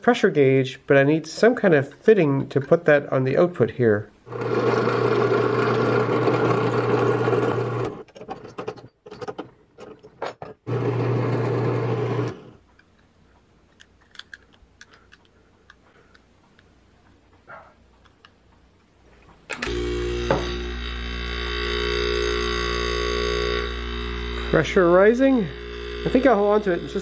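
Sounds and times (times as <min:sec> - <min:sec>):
drill press boring wood: 0:04.3 - 0:08.8, 0:10.7 - 0:12.6, 0:19.6 - 0:27.0
knocks and rattles: 0:08.1 - 0:10.7
faint handling clicks: 0:12.6 - 0:18.9.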